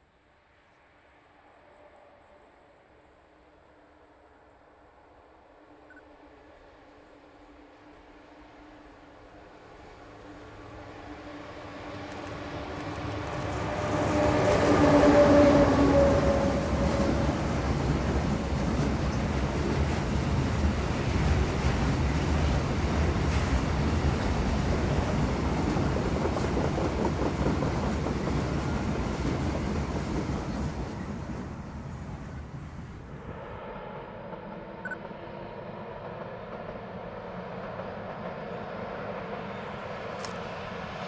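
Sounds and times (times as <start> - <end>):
electric locomotive hum: 0.0 - 41.0
wagons rumbling on rails: 9.6 - 33.2.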